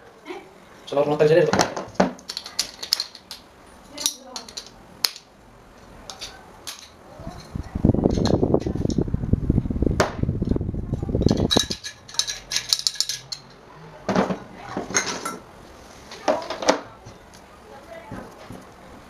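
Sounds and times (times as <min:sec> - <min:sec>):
metallic rattling and clinks: 0:02.2 - 0:05.2, 0:11.2 - 0:13.6.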